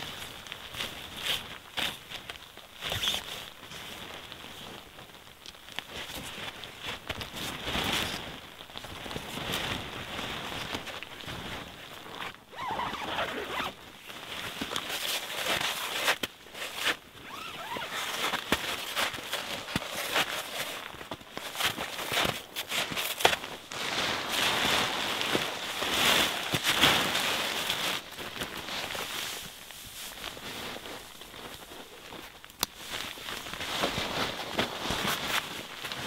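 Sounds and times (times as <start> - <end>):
nylon fabric rustling: 0.0 - 36.0
tent zipper being pulled: 2.8 - 3.3, 9.1 - 32.2.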